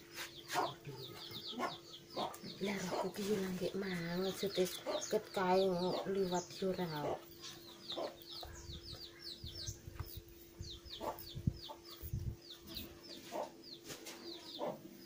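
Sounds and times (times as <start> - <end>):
chickens clucking: 0.0 - 15.0
chicks chirping: 0.0 - 15.0.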